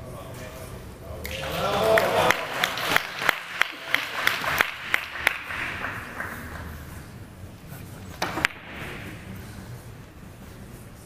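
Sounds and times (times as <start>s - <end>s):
single hand claps: 1.2s - 6.7s
audience applause: 1.3s - 6.7s.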